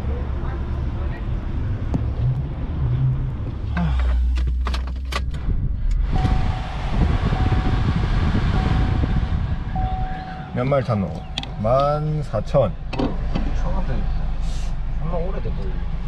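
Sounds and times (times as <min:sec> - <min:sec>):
low engine rumble: 0:00.0 - 0:16.0
steady rushing noise: 0:05.4 - 0:12.8
thin electronic tone: 0:06.2 - 0:11.8.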